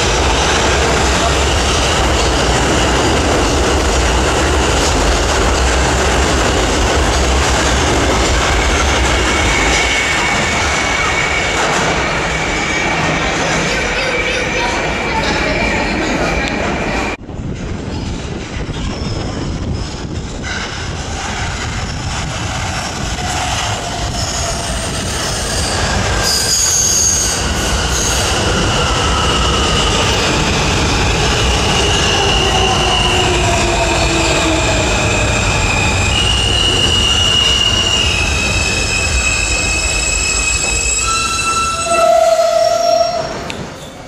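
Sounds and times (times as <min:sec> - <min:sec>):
subway train rumbling: 0:00.0 - 0:44.0
high squealing tones: 0:31.6 - 0:44.0.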